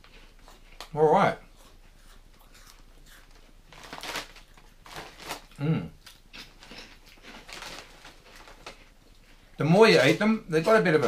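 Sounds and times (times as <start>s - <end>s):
crackers crunching: 0.0s - 11.0s
person humming: 5.6s - 6.0s.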